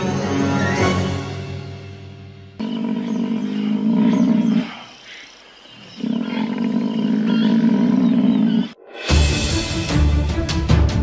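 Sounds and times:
lion growling: 2.6 - 8.8.

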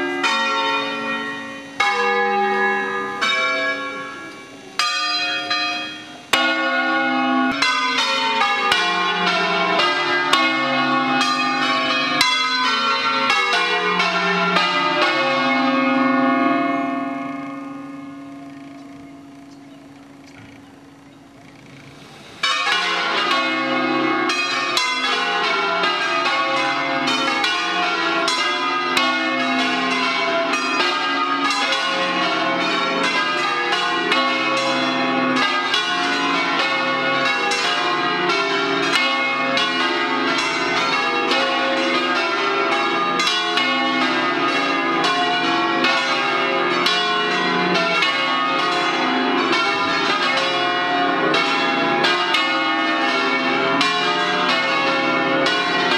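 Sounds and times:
church bells ringing: 0.0 - 55.9.

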